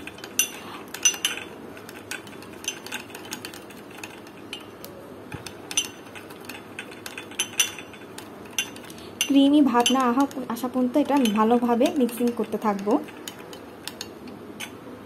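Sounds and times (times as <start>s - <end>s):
spoon clinking against glass: 5.7s - 10.4s.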